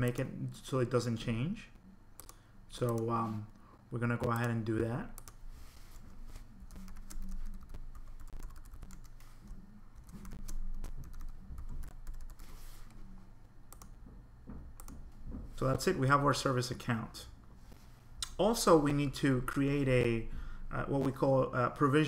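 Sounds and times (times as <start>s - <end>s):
typing on computer keyboard: 6.7s - 9.1s, 10.0s - 12.4s.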